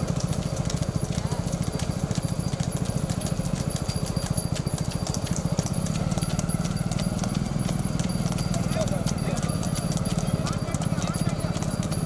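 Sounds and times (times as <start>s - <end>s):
hooves clopping on paved road: 0.0s - 12.0s
motorcycles idling: 0.0s - 12.0s.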